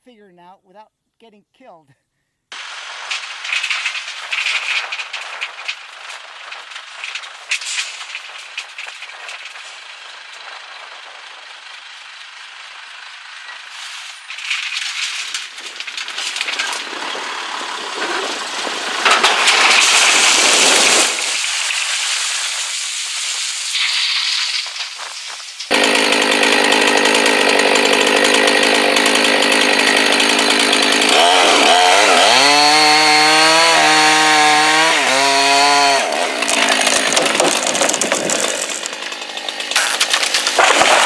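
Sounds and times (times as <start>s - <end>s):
earth and stones clattering: 36.5s - 39.1s, 39.8s - 41.0s.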